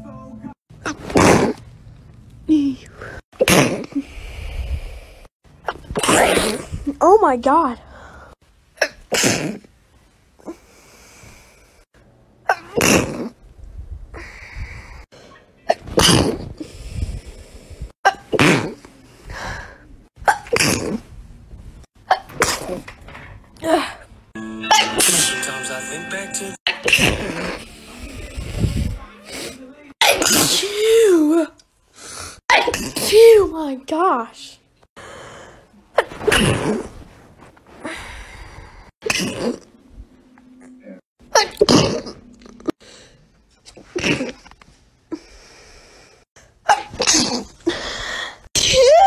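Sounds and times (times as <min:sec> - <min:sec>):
people sneezing: 0:00.8 - 0:01.6, 0:12.5 - 0:13.3, 0:15.6 - 0:16.6, 0:18.1 - 0:18.9, 0:20.2 - 0:21.0, 0:24.7 - 0:25.3, 0:26.7 - 0:31.3
person sneezing: 0:00.8 - 0:01.6, 0:12.5 - 0:13.3, 0:24.7 - 0:25.3, 0:26.7 - 0:27.6, 0:29.3 - 0:31.2, 0:32.5 - 0:33.3.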